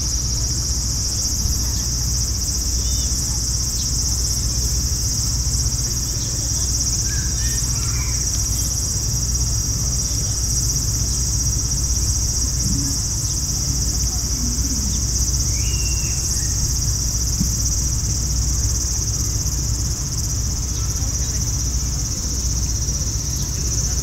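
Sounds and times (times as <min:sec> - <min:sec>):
cicadas droning: 0:00.0 - 0:24.0
low rumble: 0:09.2 - 0:19.8.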